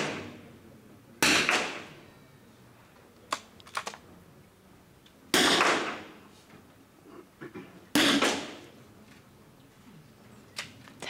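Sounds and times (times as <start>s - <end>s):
rifle shots echoing: 0.0s - 0.4s, 1.2s - 2.0s, 5.3s - 6.1s, 8.0s - 8.6s.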